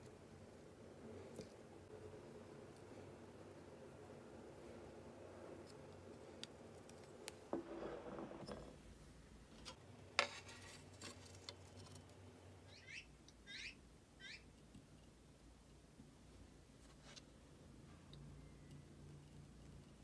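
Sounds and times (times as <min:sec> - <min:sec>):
candle scraping on metal tray: 0:07.5 - 0:08.8
small bird chirping: 0:12.6 - 0:14.6.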